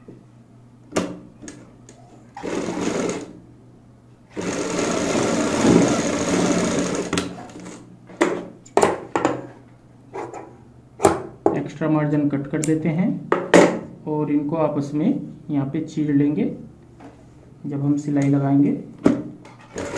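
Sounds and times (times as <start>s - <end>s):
sewing machine stitching: 2.4s - 3.3s, 4.3s - 7.8s, 19.6s - 19.9s.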